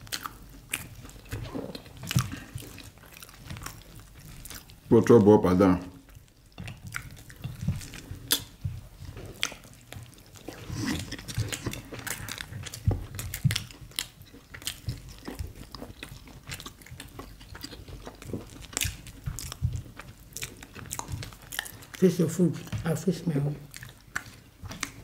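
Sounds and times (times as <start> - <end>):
people chewing and eating: 0.0 - 25.0.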